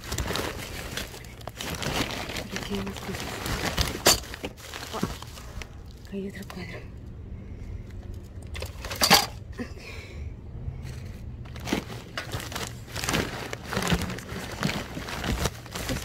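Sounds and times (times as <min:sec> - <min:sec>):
plastic packaging rustling and crinkling: 0:00.0 - 0:06.7, 0:10.8 - 0:16.0.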